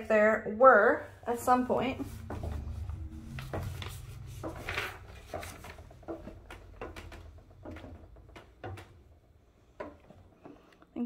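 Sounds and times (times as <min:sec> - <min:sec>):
footsteps on wooden stairs: 0:02.0 - 0:10.3.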